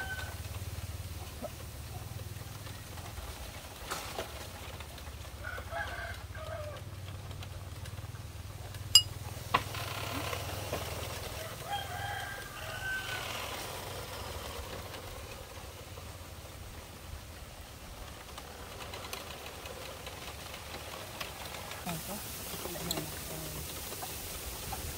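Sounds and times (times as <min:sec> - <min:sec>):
rooster crowing: 0:00.0 - 0:00.5, 0:05.4 - 0:06.9, 0:11.2 - 0:13.8.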